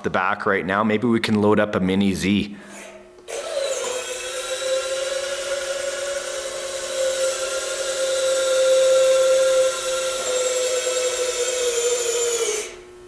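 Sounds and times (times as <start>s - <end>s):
electric actuator whirring: 3.2s - 13.0s.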